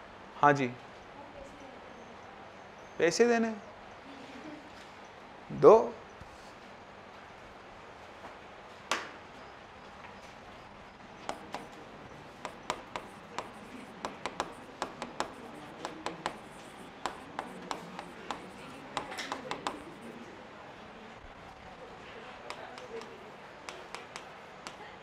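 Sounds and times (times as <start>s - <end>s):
chalk tapping and scraping: 11.2s - 20.3s, 22.4s - 25.0s.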